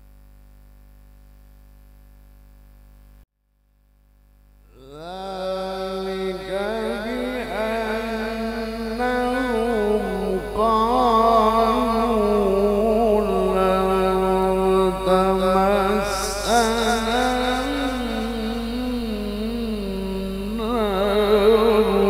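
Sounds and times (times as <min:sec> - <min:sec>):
man reciting melodically: 0:04.7 - 0:22.0.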